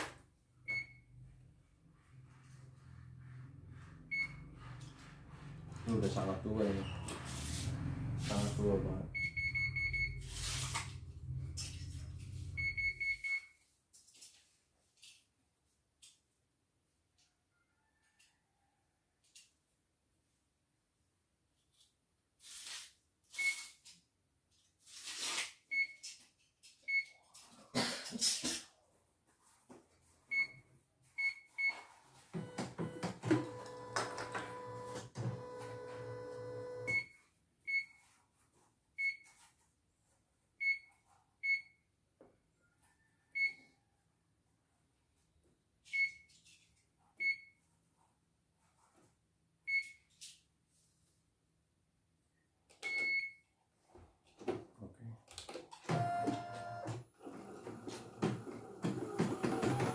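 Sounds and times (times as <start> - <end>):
machine mechanical hum: 32.4 - 36.9.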